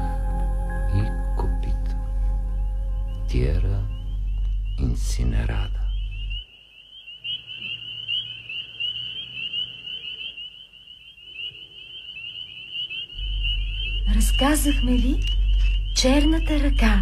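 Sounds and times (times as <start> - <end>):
low hum: 0.0 - 6.4, 13.2 - 17.0
high-pitched trill: 13.2 - 17.0.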